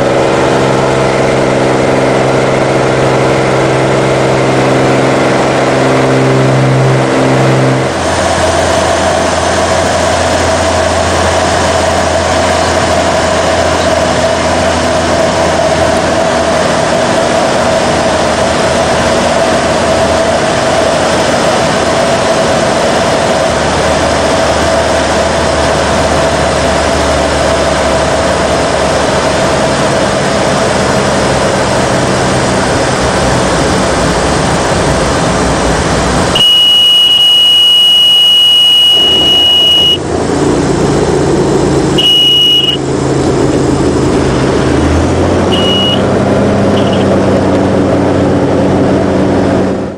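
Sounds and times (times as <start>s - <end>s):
propeller engine drone: 0.0s - 49.9s
high-pitched warning tone: 36.4s - 40.0s, 42.0s - 42.8s, 45.5s - 46.0s, 46.7s - 47.2s.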